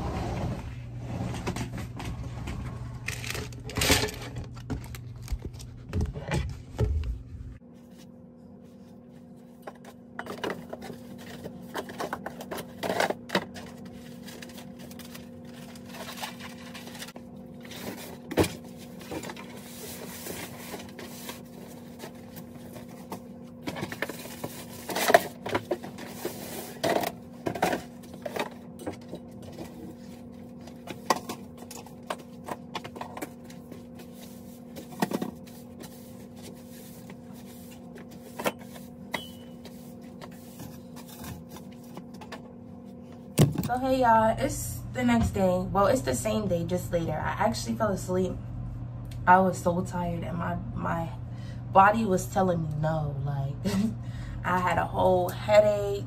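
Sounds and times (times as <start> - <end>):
steady low hum: 0.0 - 56.0
floor brush sweeping: 35.4 - 38.9.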